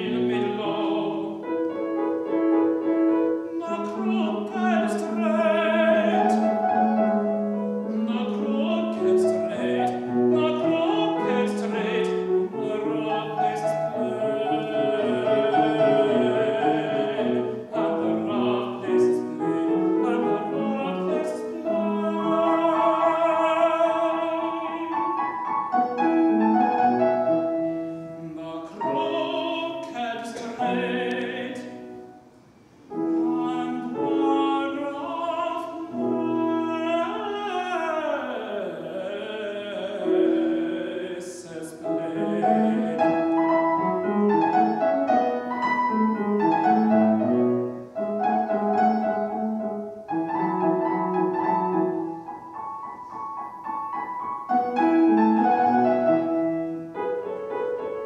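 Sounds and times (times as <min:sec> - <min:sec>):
man singing operatically: 0:00.0 - 0:02.4, 0:03.3 - 0:32.1, 0:32.9 - 0:47.3
piano accompaniment: 0:00.0 - 0:58.0.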